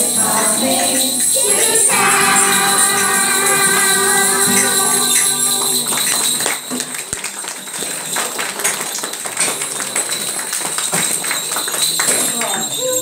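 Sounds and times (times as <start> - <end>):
children's song with jingling: 0.0 - 8.4
scattered jingles and taps: 0.8 - 13.0.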